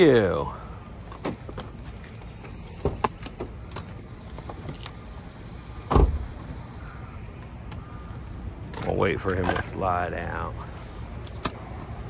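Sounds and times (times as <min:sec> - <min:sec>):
vehicle door thump: 0:05.8 - 0:06.3.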